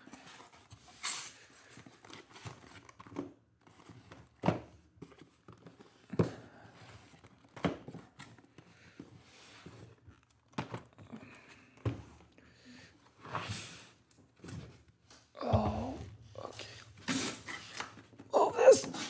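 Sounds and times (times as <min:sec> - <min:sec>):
cardboard rustling: 0:00.1 - 0:12.3.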